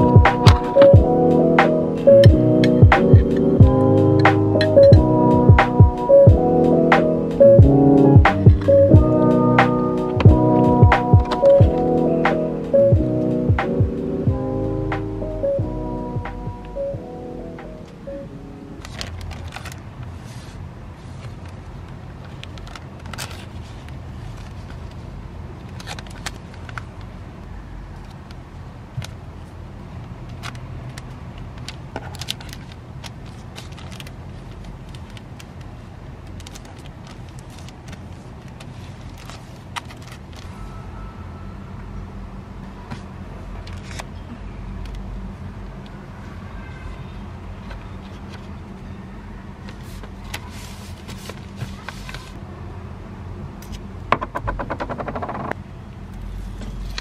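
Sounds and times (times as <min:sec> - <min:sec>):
steady low hum: 0:00.0 - 0:18.8
paper rustling and sliding: 0:18.8 - 0:21.5, 0:36.4 - 0:40.5, 0:49.7 - 0:52.4
paper and plastic rustling: 0:18.8 - 0:27.1, 0:30.4 - 0:40.6, 0:43.6 - 0:44.2, 0:49.7 - 0:52.4.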